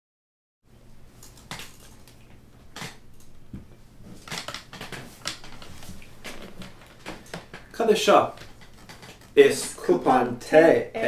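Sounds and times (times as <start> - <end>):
low electrical hum: 0.7 - 11.0
paper bill rustling: 4.2 - 9.8.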